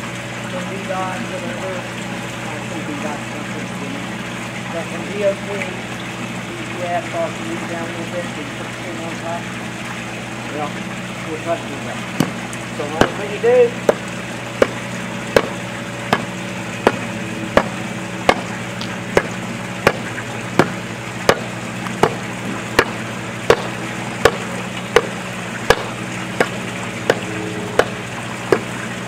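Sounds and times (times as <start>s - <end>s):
steady low hum: 0.0s - 29.0s
hand tamper striking asphalt: 14.6s - 28.7s.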